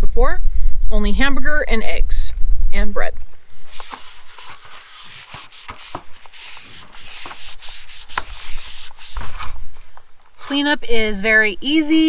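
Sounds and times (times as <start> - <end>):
paper towel rubbing griddle plates: 3.7 - 9.6.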